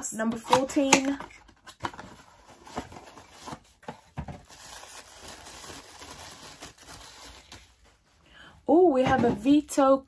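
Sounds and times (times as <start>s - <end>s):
cardboard and packaging rustling: 0.5s - 8.1s.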